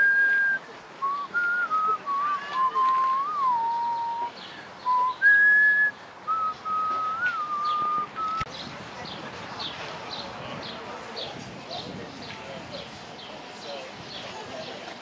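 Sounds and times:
person whistling a slow tune: 0.0 - 8.4.

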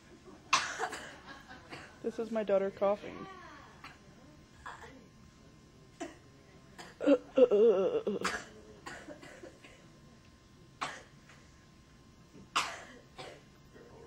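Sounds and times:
woman coughing: 0.5 - 2.1, 6.8 - 9.8, 10.8 - 11.1, 12.5 - 13.5.

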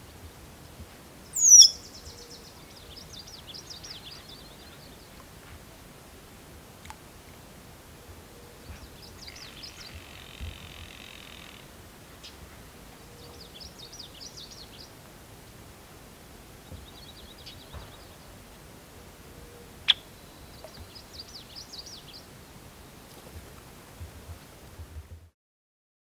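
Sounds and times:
songbird twittering: 1.3 - 4.9, 19.8 - 22.2.

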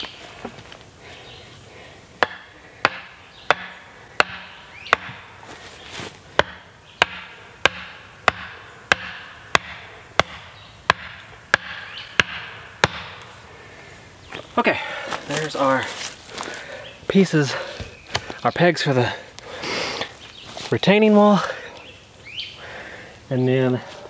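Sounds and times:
axe chopping wood: 2.2 - 5.3, 6.3 - 13.3.

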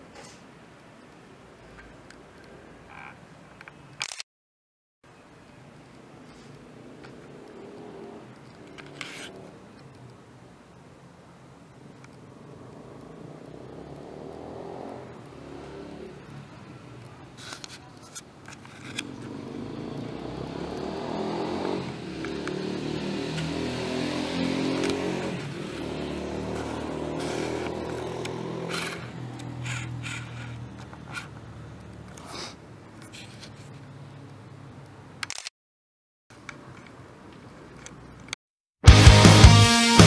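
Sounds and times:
sharp clicks: 3.6 - 4.3, 35.2 - 35.5
vehicle engine passing by: 6.4 - 9.8, 12.3 - 16.9, 19.0 - 32.1.

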